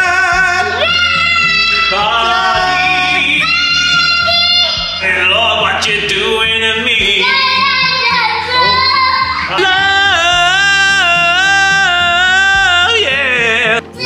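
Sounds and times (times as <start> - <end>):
singing with wavering notes: 0.0 - 14.0
steady bass: 0.0 - 14.0.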